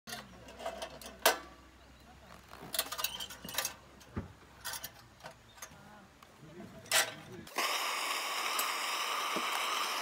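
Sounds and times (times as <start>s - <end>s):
metal stove clinks and clanks: 2.8s - 3.8s.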